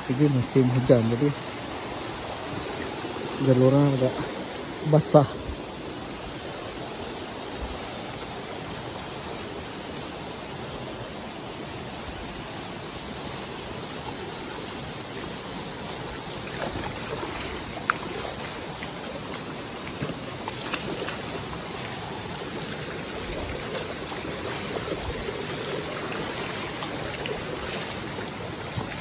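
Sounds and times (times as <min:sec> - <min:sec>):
river flowing over stones: 0:00.0 - 0:29.0.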